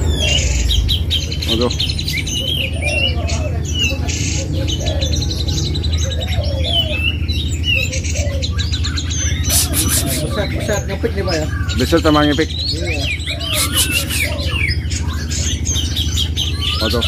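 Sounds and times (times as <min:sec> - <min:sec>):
songbirds singing: 0:00.0 - 0:17.0
steady low hum: 0:08.8 - 0:10.7.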